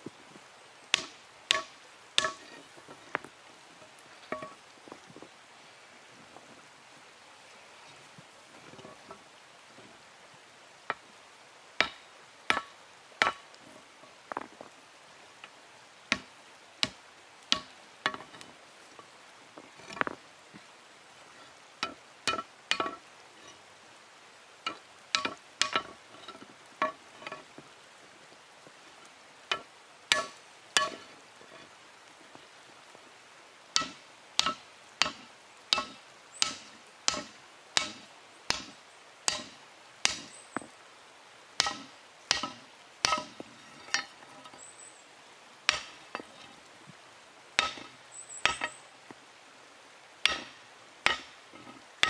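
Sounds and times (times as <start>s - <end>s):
hammer striking steel on anvil: 0.9s - 2.6s, 30.1s - 31.0s, 33.8s - 40.3s, 41.6s - 44.1s, 45.7s - 46.3s, 47.6s - 48.8s, 50.2s - 51.4s.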